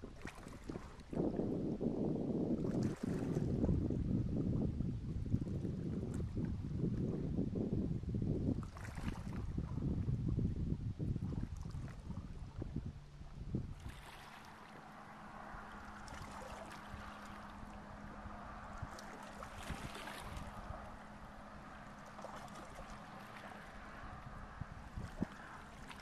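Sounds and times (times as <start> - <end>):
gentle water movement: 0.0 - 26.0
wind buffeting microphone: 0.0 - 26.0
faint steady drone: 12.6 - 26.0.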